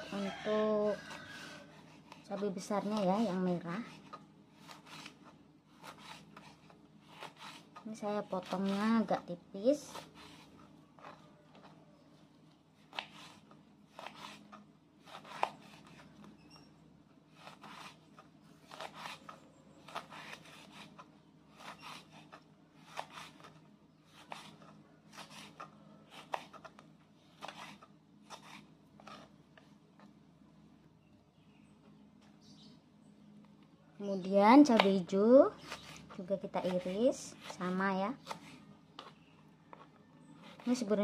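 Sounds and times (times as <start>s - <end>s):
knife slicing on wooden board: 3.8s - 7.8s, 12.9s - 16.6s, 17.3s - 26.8s, 27.4s - 29.3s, 35.6s - 39.8s.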